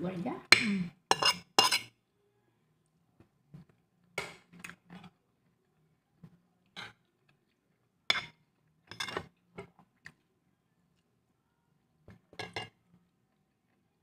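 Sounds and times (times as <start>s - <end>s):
metal spoon clinking on plate: 1.1s - 1.9s.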